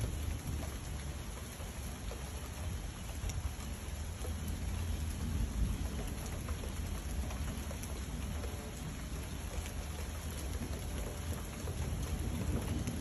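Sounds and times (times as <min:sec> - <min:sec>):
raindrops ticking close by: 0:00.0 - 0:13.0
steady rain: 0:00.0 - 0:13.0
distant thunder rumble: 0:10.3 - 0:13.0.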